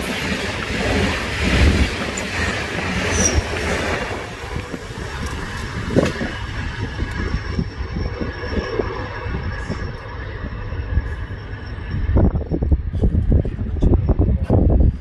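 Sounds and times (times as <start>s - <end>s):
train wheels rumbling on rails: 0.0s - 15.0s
high-pitched wheel squeal: 2.9s - 3.6s.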